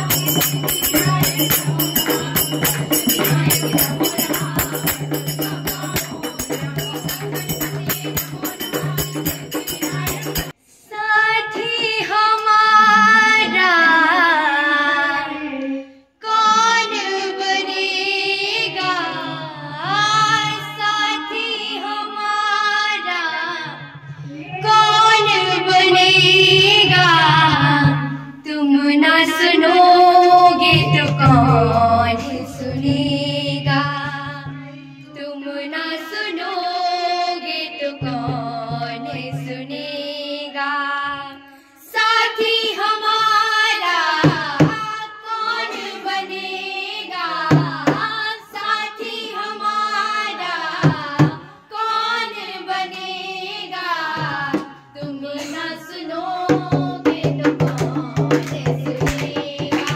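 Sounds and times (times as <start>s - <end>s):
rhythmic instrumental music: 0.0s - 10.6s
person singing: 23.2s - 41.4s, 54.1s - 59.9s.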